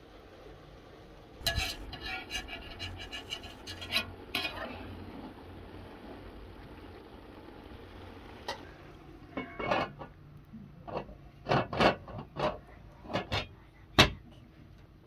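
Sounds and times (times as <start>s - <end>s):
metal pot lid clanking: 1.4s - 4.7s, 9.3s - 10.1s, 10.9s - 14.2s
dishes clanking and scraping: 1.4s - 4.8s, 9.3s - 10.2s, 10.8s - 14.2s.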